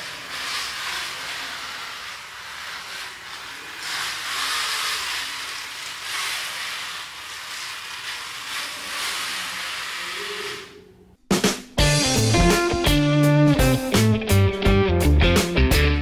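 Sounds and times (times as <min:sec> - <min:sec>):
small gear motors whirring: 0:00.0 - 0:10.9.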